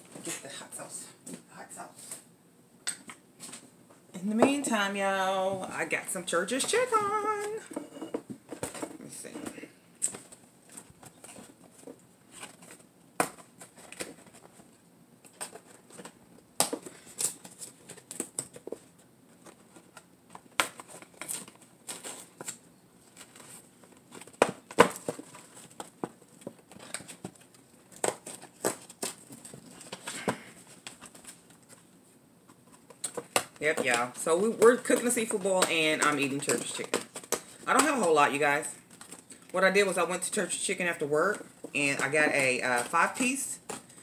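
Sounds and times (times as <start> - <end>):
sharp cardboard crackles: 15.3 - 31.8.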